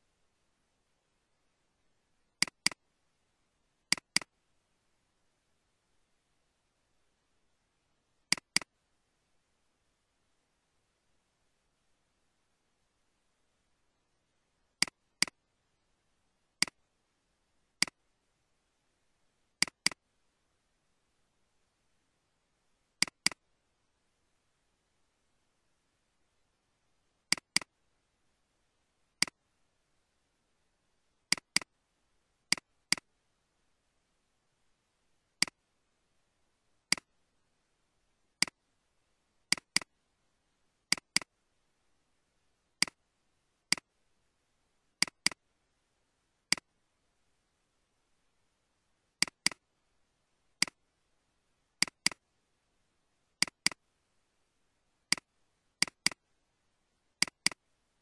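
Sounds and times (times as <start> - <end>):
computer mouse clicks: 2.4 - 2.8, 3.9 - 4.3, 8.3 - 8.7, 19.6 - 20.0, 23.0 - 23.4, 27.3 - 27.7, 31.3 - 31.7, 32.5 - 33.1, 36.9 - 37.1, 39.5 - 39.9, 40.9 - 41.3, 42.8 - 43.0, 43.7 - 43.9, 45.0 - 45.4, 46.5 - 46.7, 49.2 - 49.6, 50.6 - 50.8, 51.8 - 52.2, 53.4 - 53.8, 55.1 - 56.2, 57.2 - 57.6.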